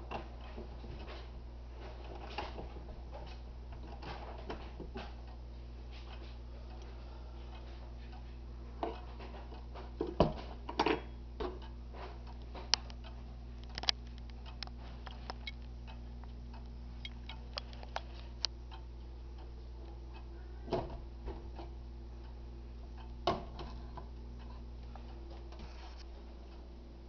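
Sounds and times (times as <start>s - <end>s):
pendulum wall clock ticking: 0.0s - 27.0s.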